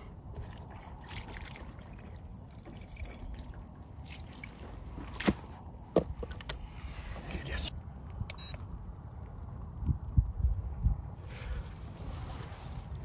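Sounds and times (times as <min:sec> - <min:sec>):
water dripping and trickling: 0:00.0 - 0:05.2.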